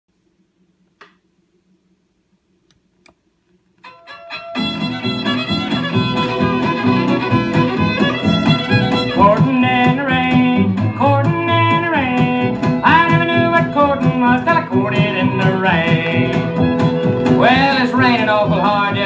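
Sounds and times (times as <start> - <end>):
sliding fiddle: 3.8 - 13.8
country band instrumental: 3.8 - 19.0.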